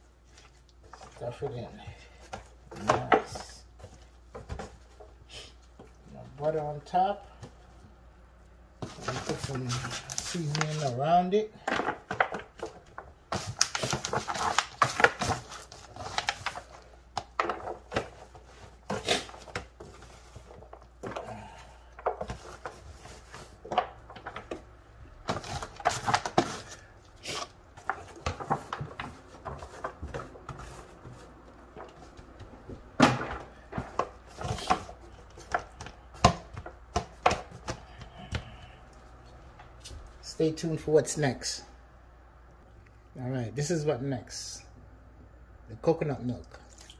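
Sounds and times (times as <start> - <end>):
foil pan crinkling: 13.4 - 20.9.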